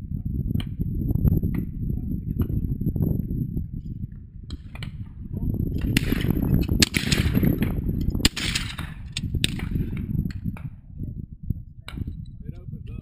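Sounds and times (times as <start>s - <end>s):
wind rumble on microphone: 0.0s - 13.0s
shotgun shots with echo: 5.8s - 9.9s.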